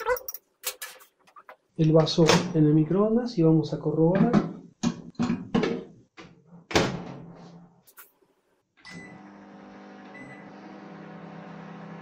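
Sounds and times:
microwave oven humming: 0:08.9 - 0:12.0.

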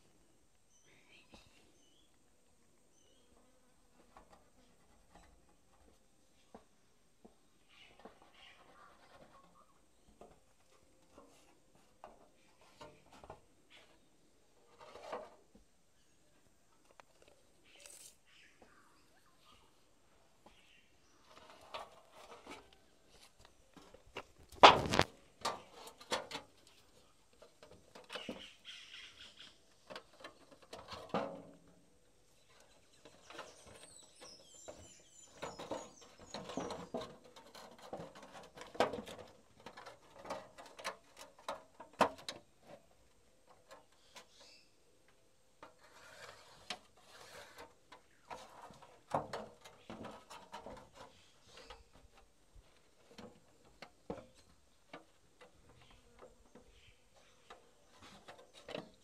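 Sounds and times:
bird chirping: 0:02.8 - 0:03.5, 0:17.4 - 0:21.4, 0:28.0 - 0:29.9, 0:32.3 - 0:37.1, 0:43.9 - 0:45.0, 0:55.8 - 0:58.6.

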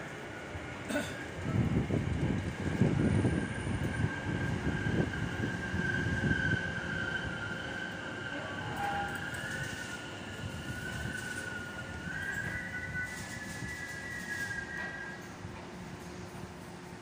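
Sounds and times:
electric train running past: 0:00.0 - 0:17.0
wheels rumbling on rails: 0:00.0 - 0:17.0.

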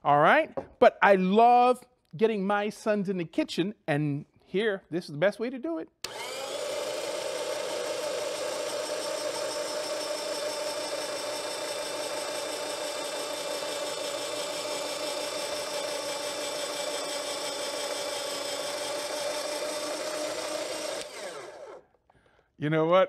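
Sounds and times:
electric shredder motor whine: 0:06.0 - 0:21.8.

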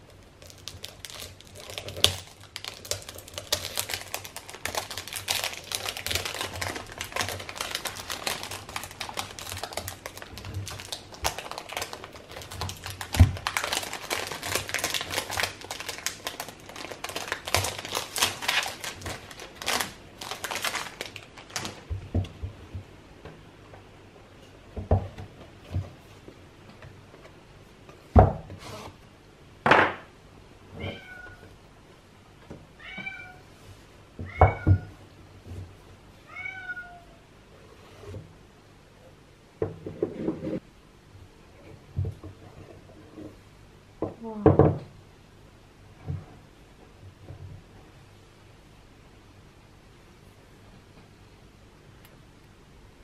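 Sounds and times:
wrapping paper crinkling: 0:00.0 - 0:21.9.

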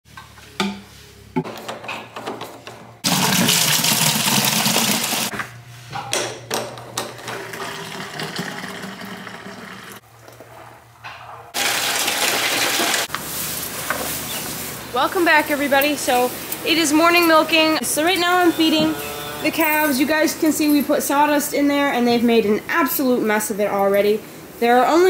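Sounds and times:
liquid gushing into plastic containers: 0:03.0 - 0:05.3, 0:07.4 - 0:10.0, 0:11.6 - 0:13.1.

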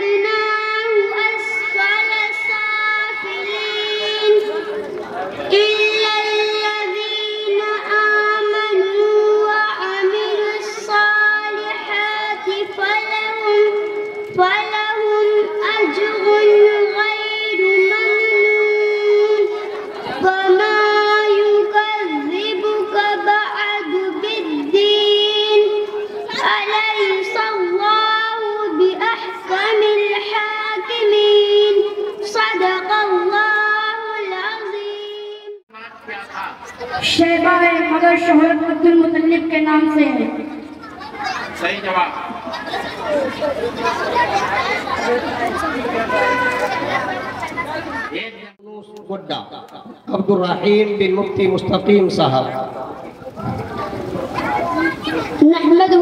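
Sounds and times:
girl singing a religious chant: 0:00.0 - 0:35.6, 0:37.0 - 0:40.6.

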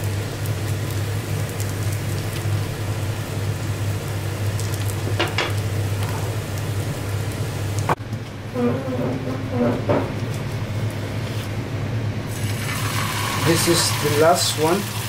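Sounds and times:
pancake sizzling in hot oil: 0:00.0 - 0:08.0, 0:12.3 - 0:15.0.

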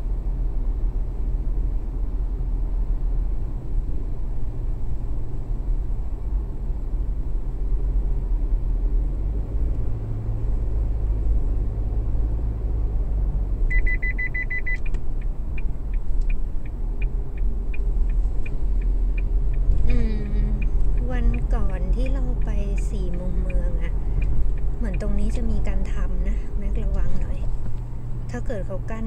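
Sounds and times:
car cabin road rumble: 0:00.0 - 0:29.0
high electronic beeps: 0:13.7 - 0:14.8.

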